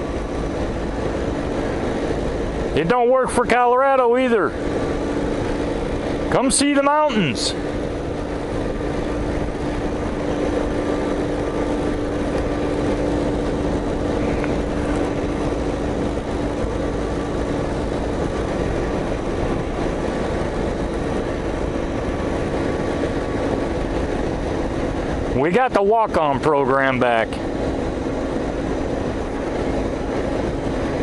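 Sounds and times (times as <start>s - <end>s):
motorcycle engine cruising: 0.0s - 31.0s
road noise: 0.0s - 31.0s
wind rushing: 4.4s - 25.4s.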